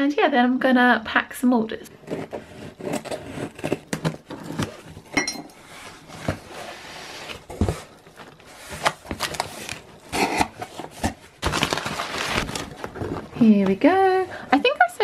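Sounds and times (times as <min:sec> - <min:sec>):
cardboard scraping and knocking: 0:02.0 - 0:13.7
paper rustling: 0:05.7 - 0:13.4.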